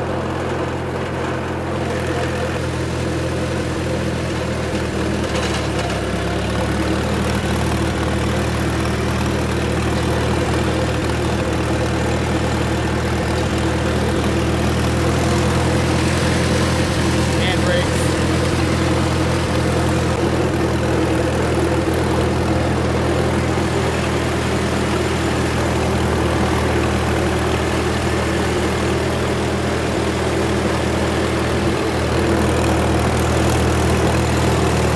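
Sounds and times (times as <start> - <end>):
tractor engine running: 0.0 - 34.9.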